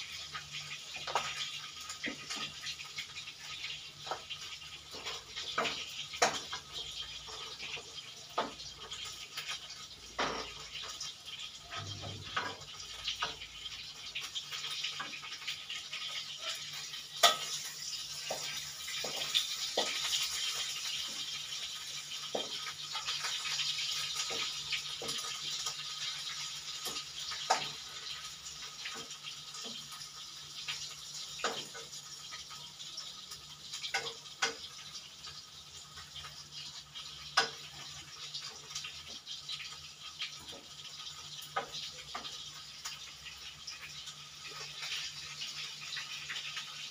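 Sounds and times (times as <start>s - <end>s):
food sizzling in hot oil: 0.0s - 46.9s
metal spatula knocking on pan: 5.5s - 6.6s, 8.3s - 8.7s, 10.1s - 10.8s, 11.7s - 13.5s.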